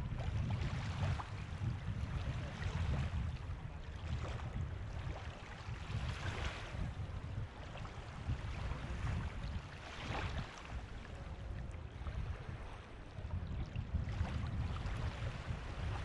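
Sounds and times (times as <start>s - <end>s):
small waves lapping on sand: 0.0s - 16.0s.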